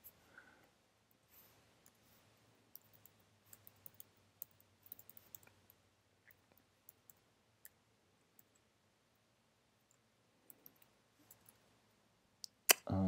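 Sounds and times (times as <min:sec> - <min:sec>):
computer keyboard typing: 0:02.7 - 0:07.2.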